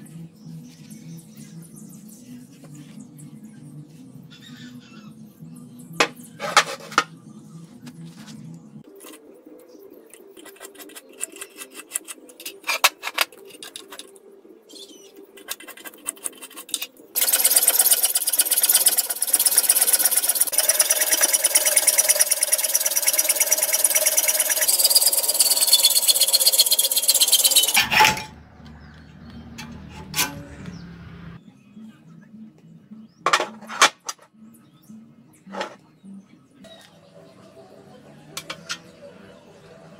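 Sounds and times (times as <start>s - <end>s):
power tool cutting steel: 17.2s - 28.4s
steel plates clanking: 17.2s - 28.4s, 29.5s - 30.6s
background music: 36.5s - 39.9s.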